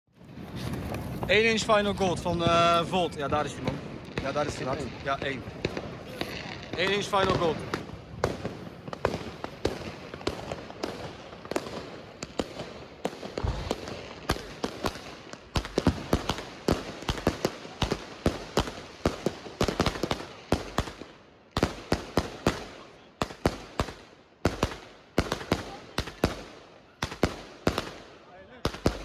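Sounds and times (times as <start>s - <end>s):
firework bursting reports: 0.1s - 29.0s
firework launch thumps: 13.4s - 14.0s.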